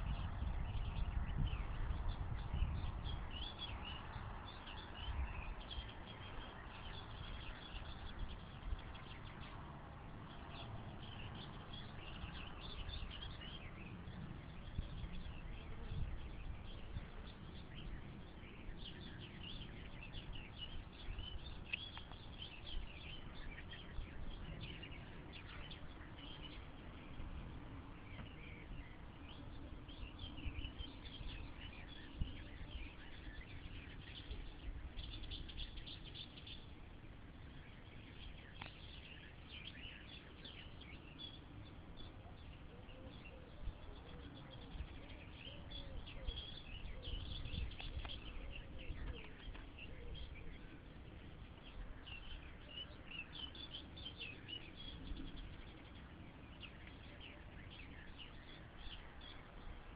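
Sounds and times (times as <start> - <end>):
small birds chirping: 0.0 - 59.9
faint clicks: 38.6 - 38.8, 47.7 - 48.2.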